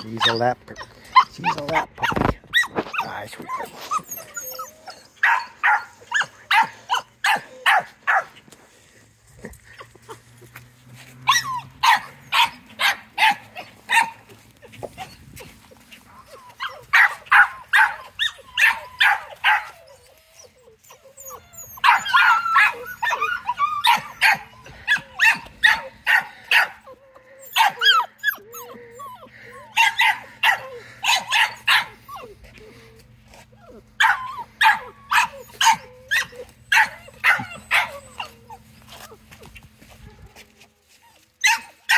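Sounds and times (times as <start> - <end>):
puppy yapping high-pitched barks: 5.2 - 8.3, 11.3 - 14.2, 16.6 - 19.7, 21.8 - 26.7, 29.8 - 32.0, 34.0 - 38.3, 41.4 - 41.9.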